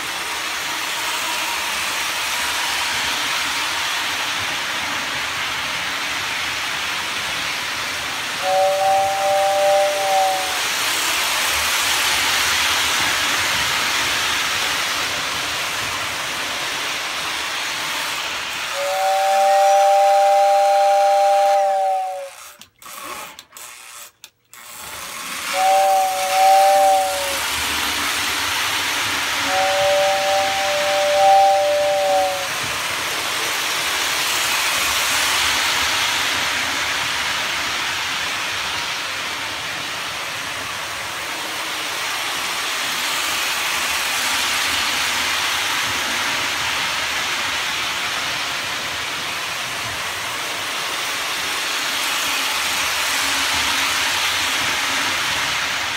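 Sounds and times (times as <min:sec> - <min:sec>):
toy train running on track: 0:00.0 - 0:55.9
two-note air whistle: 0:08.4 - 0:10.6, 0:18.7 - 0:22.6, 0:25.5 - 0:27.4, 0:29.4 - 0:32.6.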